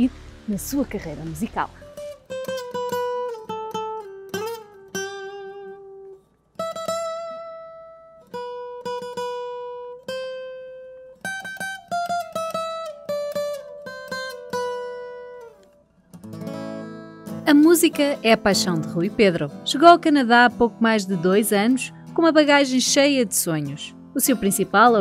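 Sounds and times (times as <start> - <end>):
acoustic guitar playing: 0.0 - 25.0.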